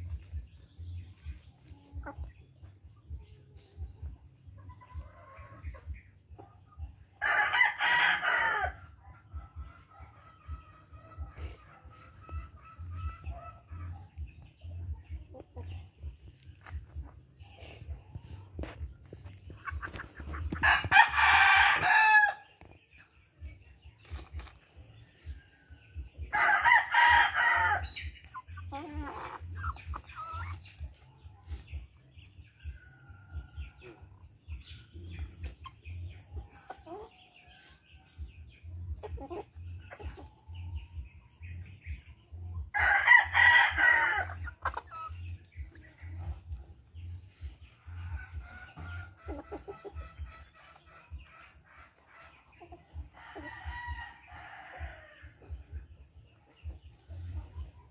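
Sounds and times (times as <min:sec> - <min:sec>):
chickens clucking and pecking: 0:00.0 - 0:57.9
rooster crowing: 0:26.3 - 0:27.8.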